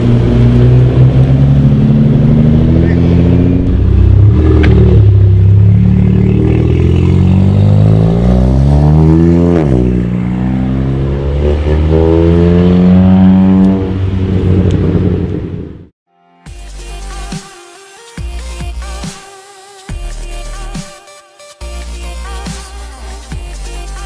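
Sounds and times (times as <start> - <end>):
car engine accelerating hard: 0.0 - 15.9.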